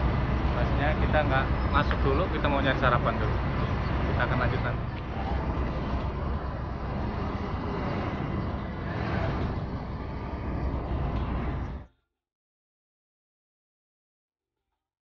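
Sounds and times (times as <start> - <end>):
bus engine idling: 0.0 - 11.9
street traffic: 0.0 - 11.9.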